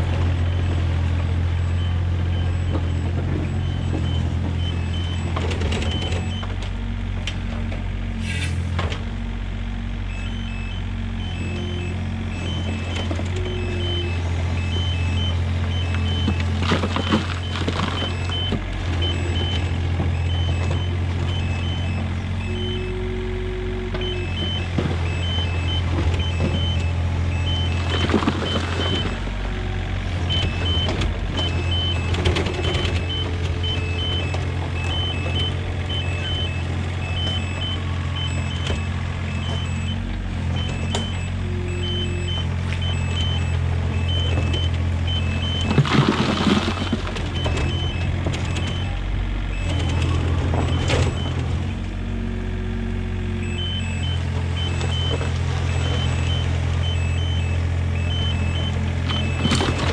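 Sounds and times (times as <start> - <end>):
excavator diesel engine: 0.0 - 59.9
bucket scraping rocky soil: 45.6 - 47.2.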